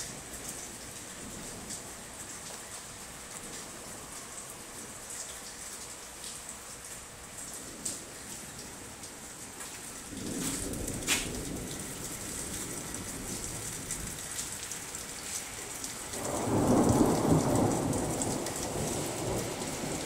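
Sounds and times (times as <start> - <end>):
raindrops ticking on surface: 0.0 - 20.0
steady rain: 0.0 - 20.0
rolling thunder: 16.2 - 20.0.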